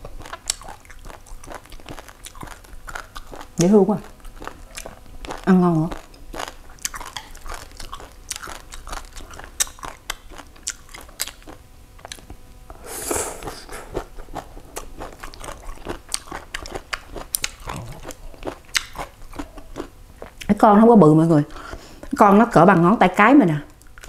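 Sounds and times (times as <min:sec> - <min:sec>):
crunchy chewing: 0:00.0 - 0:20.6
slurping suck: 0:12.7 - 0:14.1.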